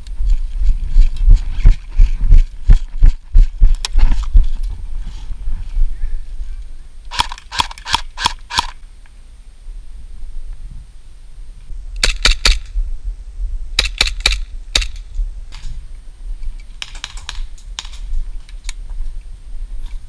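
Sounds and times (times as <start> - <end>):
steady low rumble: 0.0 - 20.0
airsoft guns firing clicks: 7.1 - 8.8, 12.0 - 12.7, 13.8 - 15.1, 16.7 - 18.1.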